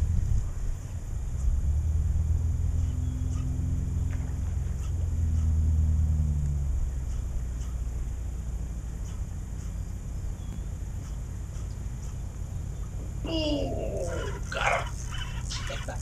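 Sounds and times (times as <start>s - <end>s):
engine droning: 0.0s - 16.0s
low wind rumble: 0.0s - 16.0s.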